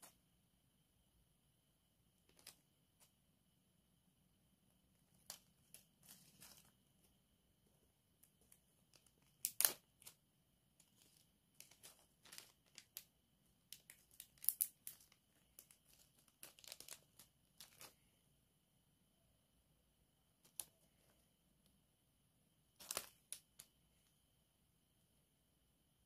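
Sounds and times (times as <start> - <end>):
plastic bag crinkling: 10.8 - 18.0, 22.7 - 23.7.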